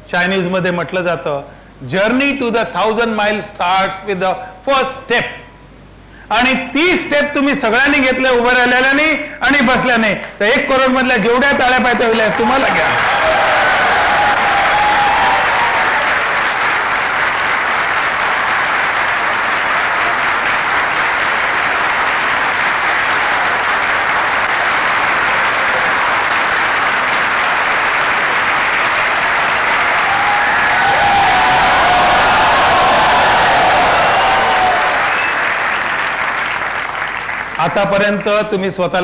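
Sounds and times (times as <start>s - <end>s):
audience applauding: 11.5s - 38.3s.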